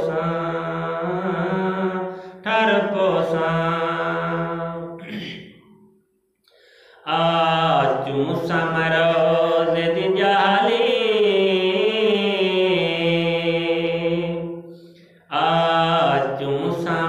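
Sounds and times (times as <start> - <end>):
man chanting into microphone: 0.0 - 5.2, 7.1 - 14.4, 15.3 - 17.0.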